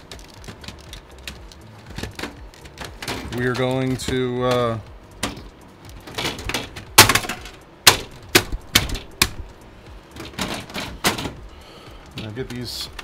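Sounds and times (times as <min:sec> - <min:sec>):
computer case panel clicking: 0:00.0 - 0:11.5.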